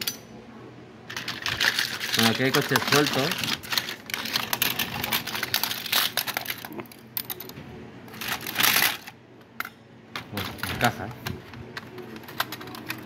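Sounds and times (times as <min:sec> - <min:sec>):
model cars clinking and clattering: 0:01.1 - 0:07.5, 0:10.2 - 0:13.0.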